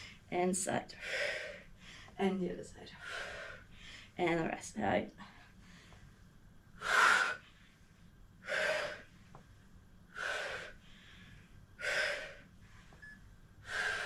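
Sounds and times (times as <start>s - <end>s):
woman breathing sharply: 3.0s - 4.2s, 6.8s - 9.2s, 10.2s - 14.0s.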